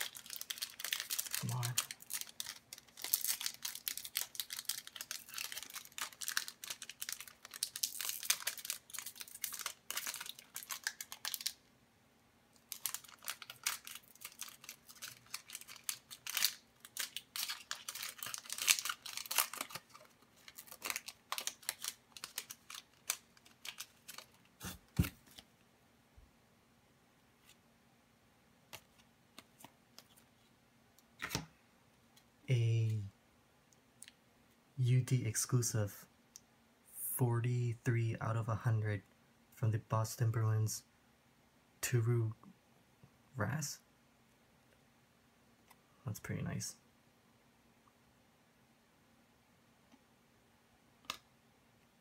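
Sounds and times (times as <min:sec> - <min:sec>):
foil wrapper crinkling and tearing: 0:00.0 - 0:11.6, 0:12.6 - 0:25.4.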